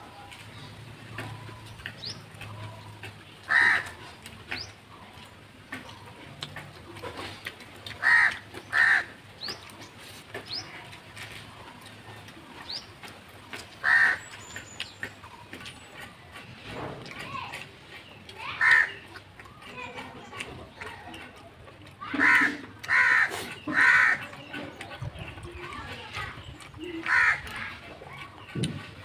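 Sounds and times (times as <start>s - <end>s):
crow cawing: 3.5s - 4.0s, 8.0s - 9.1s, 13.8s - 14.2s, 18.6s - 18.9s, 22.2s - 24.2s, 27.1s - 27.4s.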